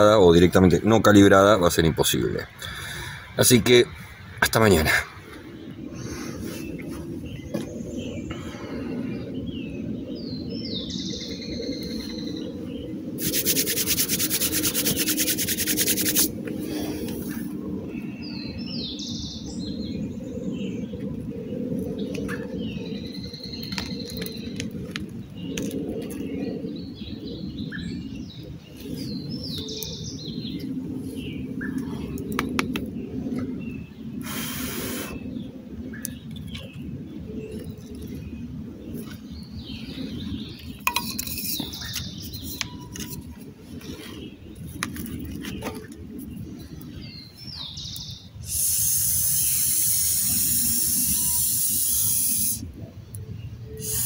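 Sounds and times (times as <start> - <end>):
loud rough rasping noise: 13.2 - 16.3
songbird chirping: 18.0 - 54.0.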